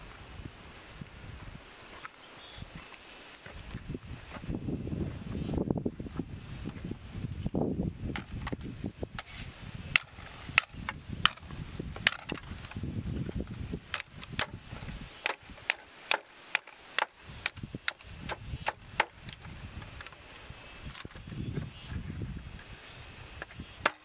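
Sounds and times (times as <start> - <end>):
knife chopping dry bamboo: 13.9 - 14.6, 15.2 - 19.3.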